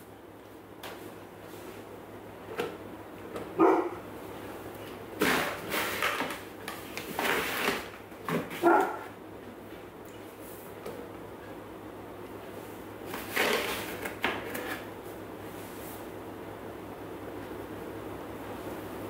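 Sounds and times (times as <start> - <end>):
dog barking: 3.6 - 4.0, 8.6 - 9.1.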